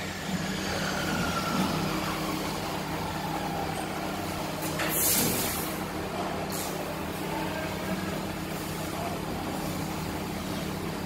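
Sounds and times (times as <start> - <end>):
faint whine sliding down: 0.0 - 5.5
laser cutting machine hum: 0.0 - 11.0.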